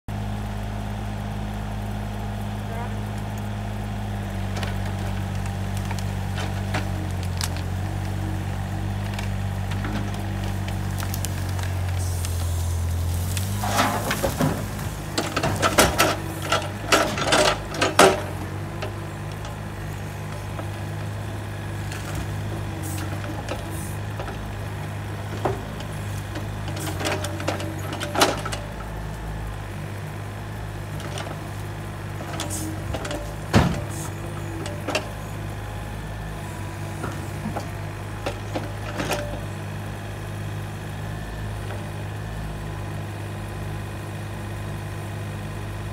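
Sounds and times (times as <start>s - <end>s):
excavator diesel engine running: 0.1s - 45.9s
cracks and knocks of stump: 4.4s - 8.3s, 8.9s - 29.2s
brush clunking into trailer: 4.4s - 40.1s.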